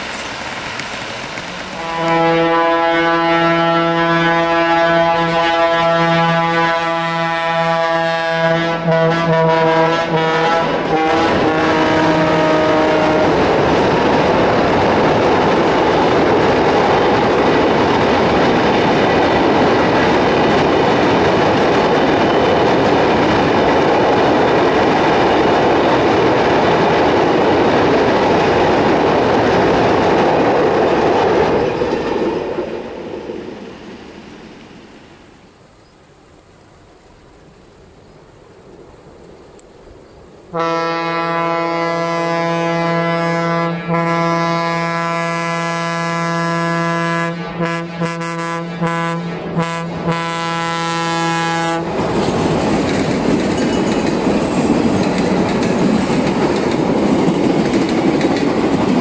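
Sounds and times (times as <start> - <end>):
train wheels rumbling on bridge: 0.0 - 35.0, 37.4 - 59.0
diesel locomotive horn blast: 1.8 - 13.4, 40.5 - 52.0.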